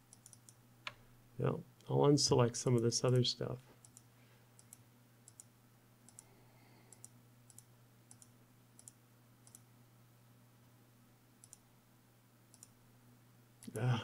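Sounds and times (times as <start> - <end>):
low steady hum: 0.0 - 14.0
computer mouse clicks: 0.1 - 1.0, 3.8 - 5.5, 6.1 - 6.3, 6.9 - 9.7, 11.4 - 11.6, 12.5 - 12.8.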